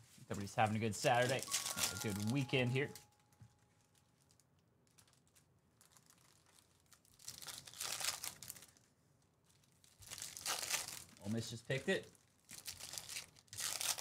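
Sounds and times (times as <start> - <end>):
foil pack tearing and crinkling: 3.9 - 8.9, 9.6 - 11.4, 12.4 - 14.0.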